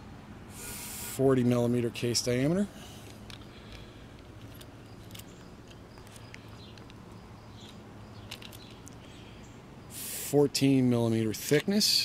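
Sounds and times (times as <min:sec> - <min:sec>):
faint handling clicks and rubbing: 0:03.0 - 0:09.1.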